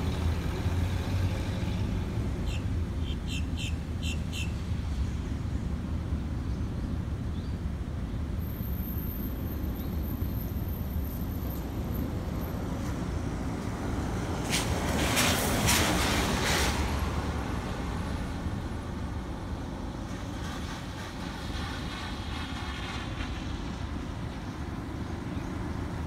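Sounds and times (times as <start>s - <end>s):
vehicle passing on wet road: 0.0s - 2.5s, 12.5s - 26.0s.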